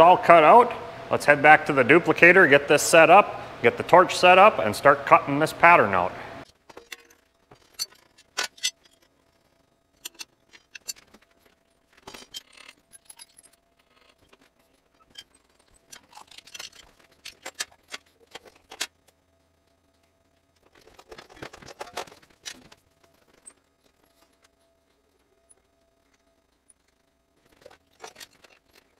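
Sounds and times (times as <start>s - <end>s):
faint steady hum: 0.0s - 28.9s
metal tools clinking: 6.7s - 9.1s, 10.0s - 11.2s, 12.0s - 14.1s, 15.0s - 18.8s, 27.5s - 28.9s.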